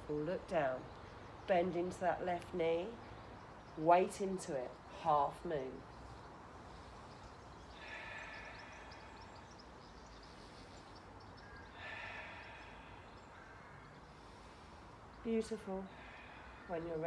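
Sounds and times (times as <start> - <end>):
faint outdoor background noise: 0.0 - 17.0
slow breaths: 6.4 - 15.2, 15.8 - 17.0.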